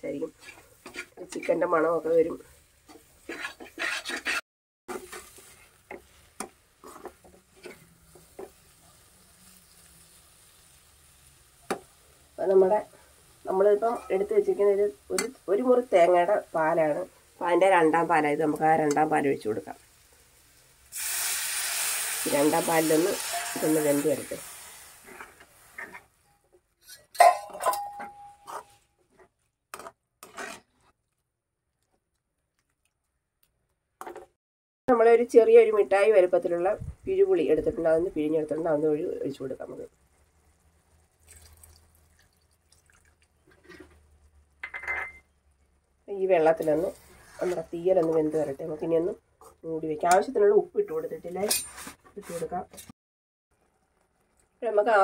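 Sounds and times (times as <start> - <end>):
metal spoon scraping a pan: 0.1 - 8.7, 25.0 - 26.2, 26.8 - 31.0, 46.4 - 48.7, 51.3 - 52.9
faint sizzle: 4.9 - 26.3.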